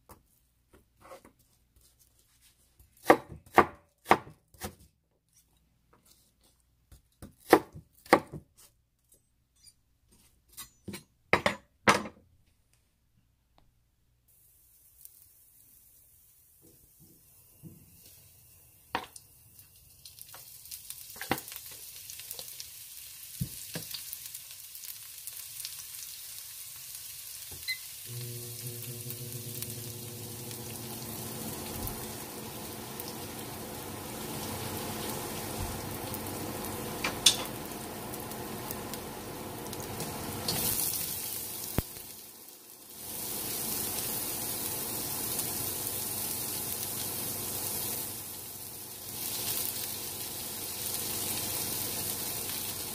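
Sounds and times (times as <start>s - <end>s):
garlic sizzling in a wok: 14.3s - 52.9s
onion frying in a wok: 14.3s - 52.9s.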